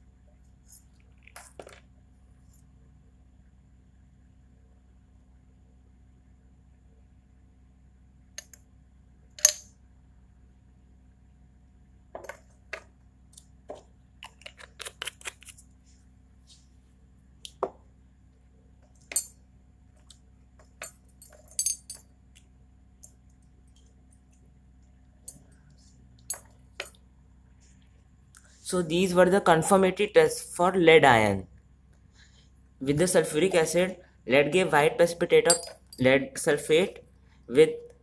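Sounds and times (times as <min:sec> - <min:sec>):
glass test tubes clinking: 0:20.7 - 0:22.0, 0:35.4 - 0:36.2.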